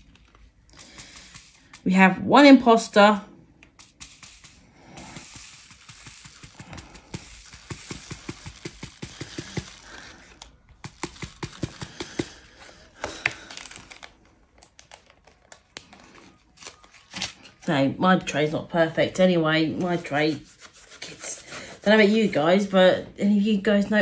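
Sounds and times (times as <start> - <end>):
beads rattling in plastic tray: 3.8 - 12.4.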